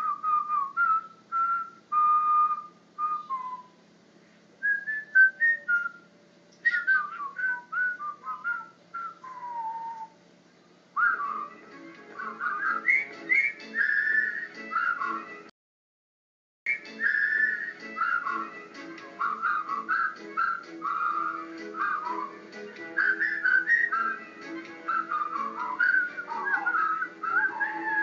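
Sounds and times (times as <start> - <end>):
person whistling a melody: 4.6 - 6.0, 11.0 - 11.6, 12.2 - 15.3, 16.7 - 18.6, 19.2 - 28.0
low repeating musical pattern: 11.1 - 15.5, 16.8 - 28.0.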